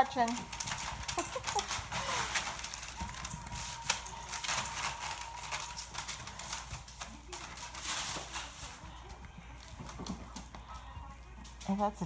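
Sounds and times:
puppy claws clicking on tiles: 0.0s - 11.8s.

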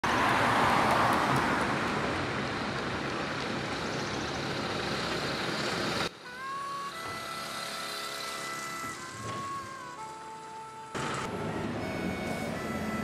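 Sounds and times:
vehicle passing close by: 0.0s - 2.4s.

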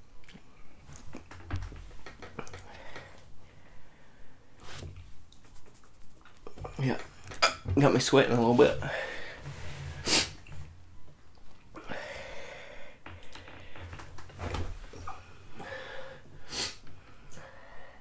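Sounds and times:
man breathing hard: 2.4s - 4.5s, 8.8s - 9.5s, 11.8s - 13.9s, 15.1s - 18.0s
sharp hissing breaths: 15.6s - 18.0s.

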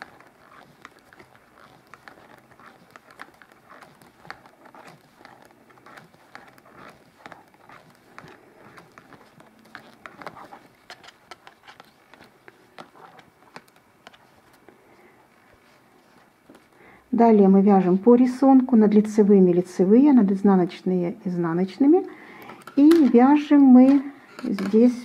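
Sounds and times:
knitting needles clicking: 0.0s - 14.2s.

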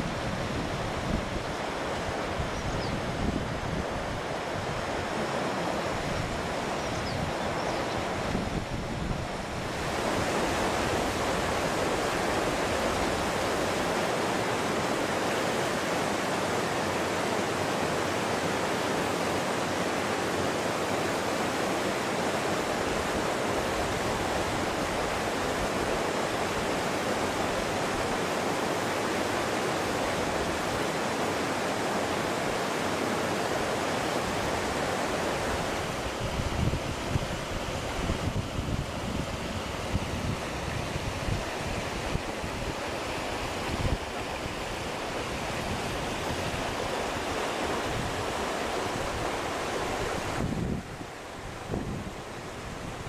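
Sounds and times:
stream rushing over rocks: 0.0s - 53.0s
wind buffeting microphone: 5.8s - 13.8s, 34.3s - 53.0s.

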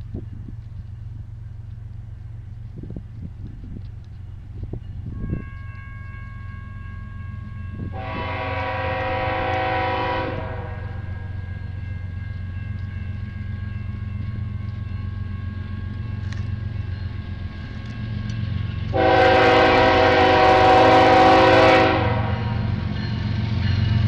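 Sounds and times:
passing train rumble: 0.0s - 24.0s
diesel locomotive horn blast: 7.8s - 11.4s, 18.9s - 22.7s.

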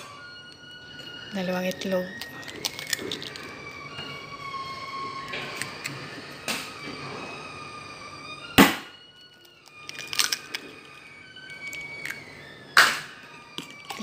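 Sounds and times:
egg cracking on metal bowl: 2.1s - 3.4s.

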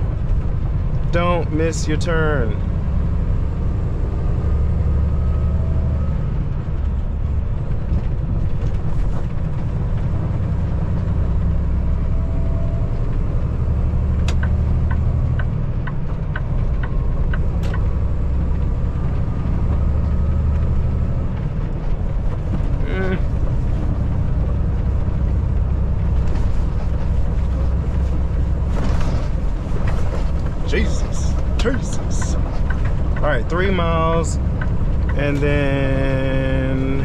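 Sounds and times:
truck diesel engine drone: 0.0s - 37.0s
regular ticking: 29.8s - 37.0s.

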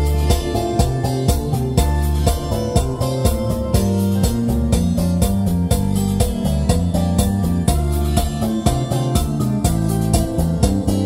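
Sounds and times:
instrumental music with keyboard and guitar: 0.0s - 11.0s.

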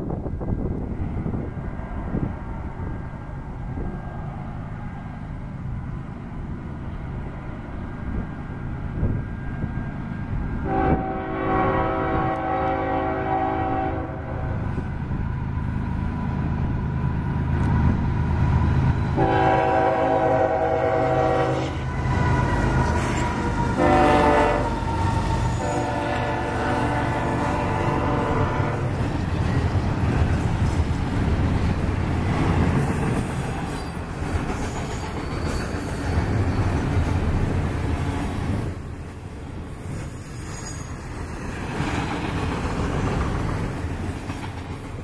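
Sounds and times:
freight train rumble: 0.0s - 45.0s
locomotive air horn blasts: 10.6s - 14.5s, 19.2s - 22.3s, 23.5s - 24.9s, 25.5s - 28.9s.

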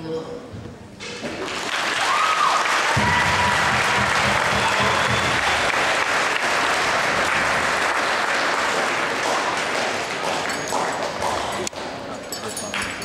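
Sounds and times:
large audience applauding: 1.4s - 11.9s
low hum: 3.0s - 6.0s.

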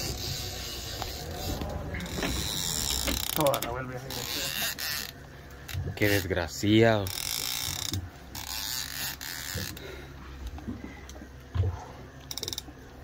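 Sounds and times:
fishing reel drag buzzing: 0.0s - 6.3s, 7.0s - 9.9s.

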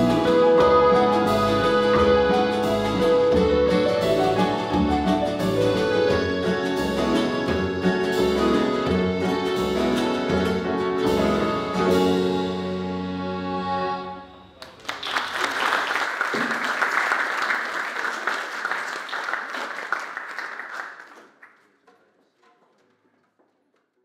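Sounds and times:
band chord: 0.0s - 14.6s
audience applauding: 14.6s - 22.1s.

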